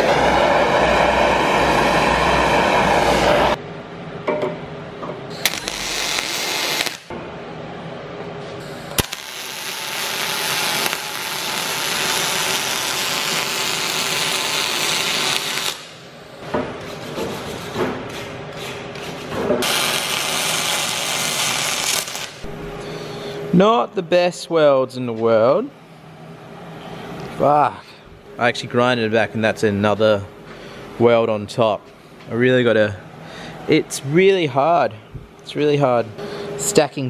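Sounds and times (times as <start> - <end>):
electric arc welding: 5.3 - 7.1, 8.8 - 16.0, 19.6 - 22.5.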